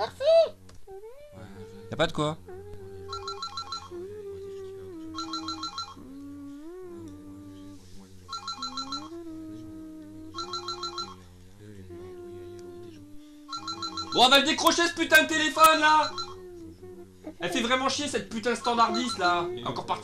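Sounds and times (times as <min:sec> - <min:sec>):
wavering melodic tone: 0:01.1 - 0:11.2, 0:12.0 - 0:20.0
telephone trilling rings: 0:03.1 - 0:03.9, 0:05.2 - 0:06.0, 0:08.3 - 0:09.1, 0:10.4 - 0:11.2, 0:13.5 - 0:14.4, 0:15.9 - 0:16.3, 0:18.9 - 0:19.4.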